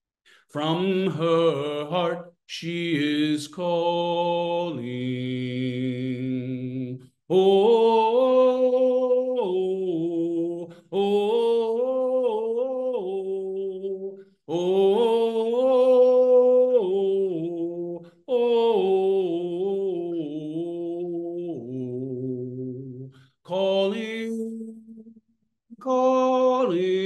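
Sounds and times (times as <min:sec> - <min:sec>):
singer breathing: 0:00.2 - 0:00.6, 0:10.7 - 0:10.9, 0:23.1 - 0:23.4
man singing unaccompanied: 0:00.5 - 0:27.0.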